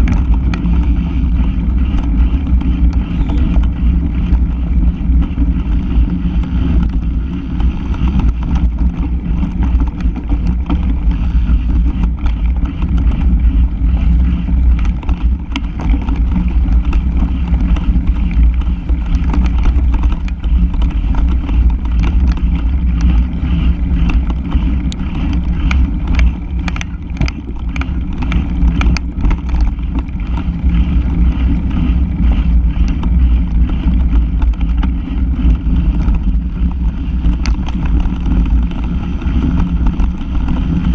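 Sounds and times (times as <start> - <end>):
bike rumbling over dirt trail: 0.0 - 40.9
clicks and knocks from bumps: 7.6 - 31.8.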